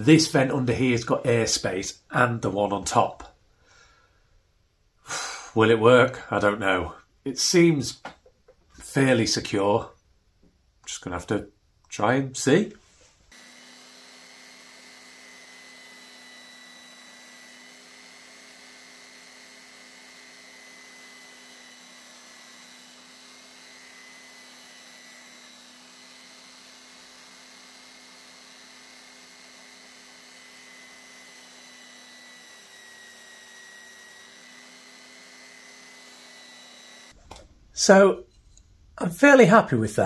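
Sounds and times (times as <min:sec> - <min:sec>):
belt sander humming and whining: 0:13.3 - 0:38.0.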